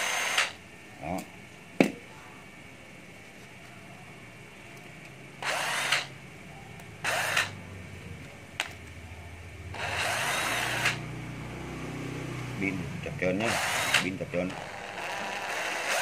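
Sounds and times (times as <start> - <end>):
cordless drill whirring: 0.0 - 0.6, 5.4 - 6.1, 7.0 - 7.5, 9.8 - 11.0, 13.4 - 16.0
drill click: 5.4 - 6.1, 7.0 - 7.5, 9.8 - 11.0, 13.4 - 16.0.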